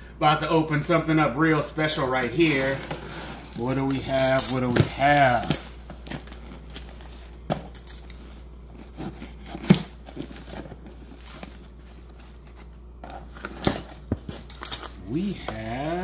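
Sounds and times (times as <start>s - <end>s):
packing tape tearing: 3.5s - 16.0s.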